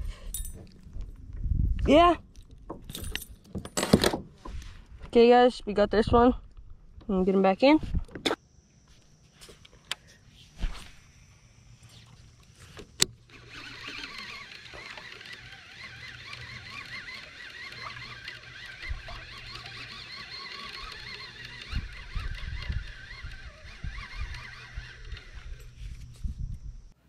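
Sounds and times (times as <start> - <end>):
fishing reel whirring: 13.3 - 26.9.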